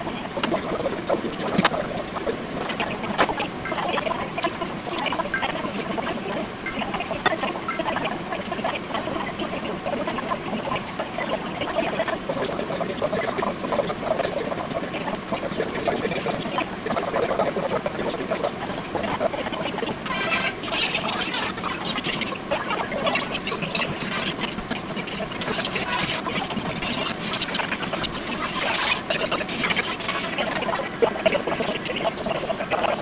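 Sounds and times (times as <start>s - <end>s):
water splashing and gurgling: 0.0s - 33.0s.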